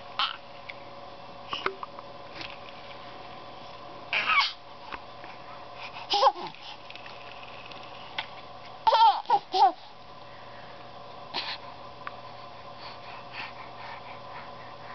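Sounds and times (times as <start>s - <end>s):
baby squealing and giggling: 4.1s - 4.6s, 8.9s - 9.8s.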